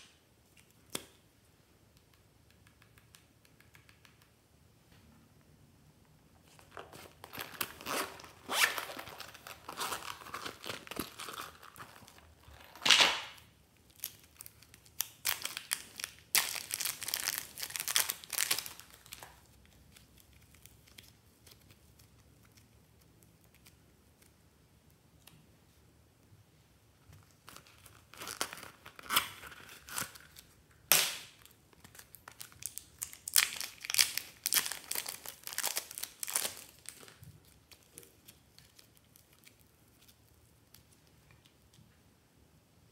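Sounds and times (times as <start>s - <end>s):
plastic wrap crinkling and tearing: 6.4s - 22.7s, 27.2s - 41.0s.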